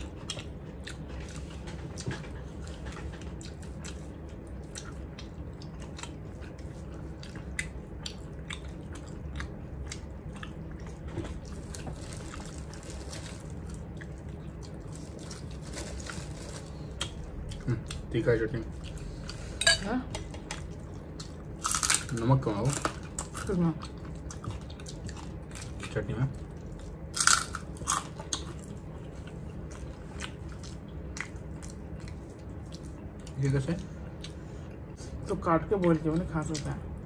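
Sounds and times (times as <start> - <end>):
chewing and mouth clicks: 0.0 - 15.5, 23.0 - 35.0
steady low hum: 0.0 - 37.0.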